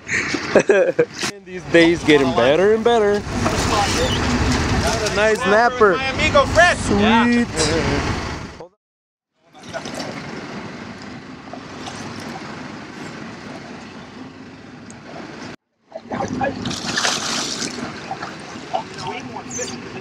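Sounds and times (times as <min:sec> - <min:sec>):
boat and water noise: 0:00.0 - 0:08.7, 0:09.4 - 0:20.0
fish splashing at the surface: 0:16.6 - 0:19.2.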